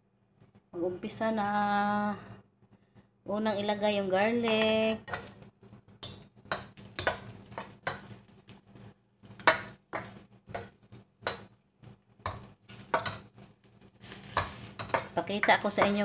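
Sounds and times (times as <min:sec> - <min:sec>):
spatula scraping metal wok: 0:05.0 - 0:11.5, 0:12.2 - 0:16.0.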